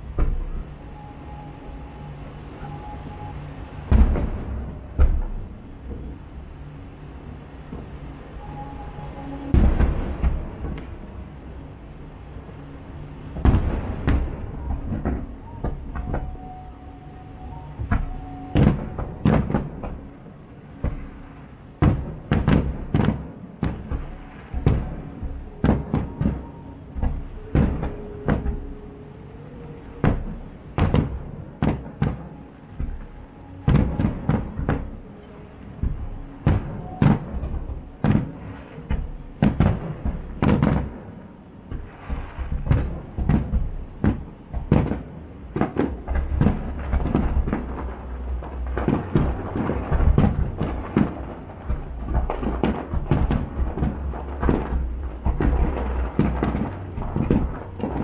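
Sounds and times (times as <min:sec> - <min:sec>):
firework shells booming: 0:35.8 - 0:41.1, 0:41.7 - 0:58.0.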